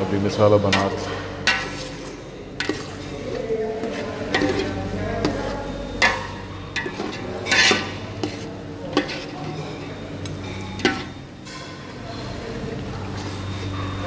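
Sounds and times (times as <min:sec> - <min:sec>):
metal spoon scraping a metal pot: 0:00.7 - 0:11.2.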